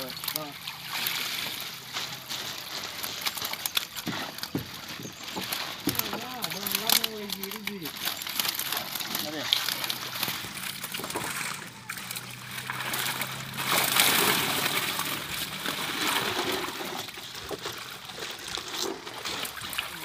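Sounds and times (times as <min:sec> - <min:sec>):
water splashing and trickling: 0:00.0 - 0:20.0.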